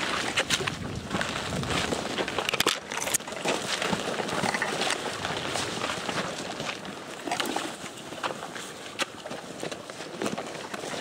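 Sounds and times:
footsteps through brush: 0.0 - 11.0
twigs crackling and snapping: 0.0 - 11.0.

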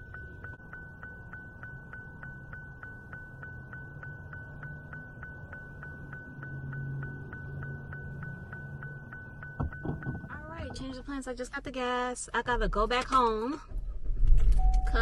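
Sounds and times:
low hum: 0.0 - 11.2.

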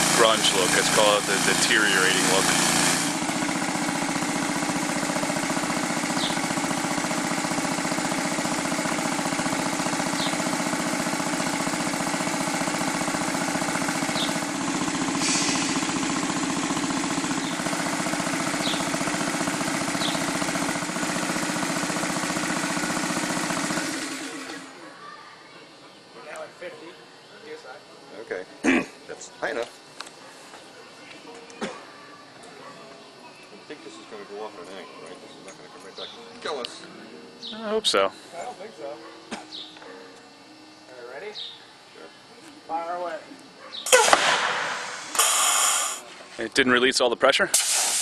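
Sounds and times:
air compressor chugging: 0.0 - 24.8, 43.9 - 46.2.

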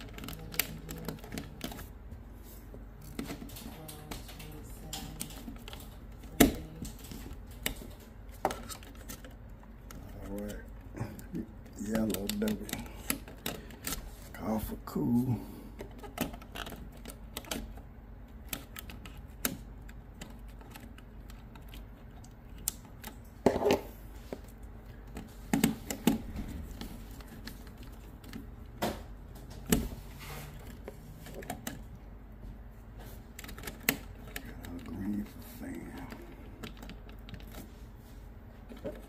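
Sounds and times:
clicks and knocks of objects handled: 0.0 - 14.6, 15.7 - 39.0
steady low hum: 0.0 - 39.0.

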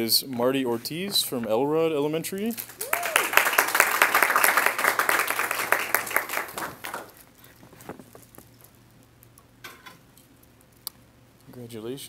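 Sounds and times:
audience applauding: 2.7 - 7.2.

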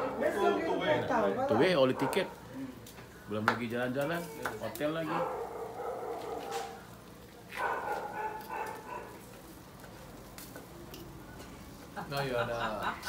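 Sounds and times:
dog barking: 1.5 - 2.4, 5.0 - 6.8, 7.5 - 9.2.

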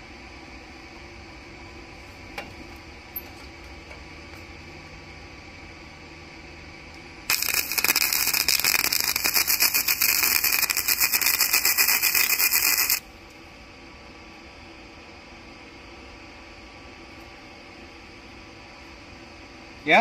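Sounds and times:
welding arc sizzling and crackling: 7.3 - 13.1.

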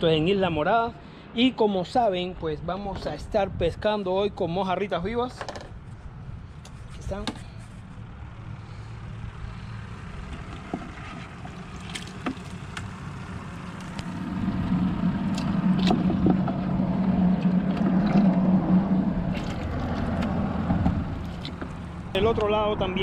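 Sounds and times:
low engine hum: 5.7 - 23.0
hand sloshing water in bucket: 10.9 - 12.6, 15.3 - 22.0
small splashes and taps: 19.3 - 21.8.

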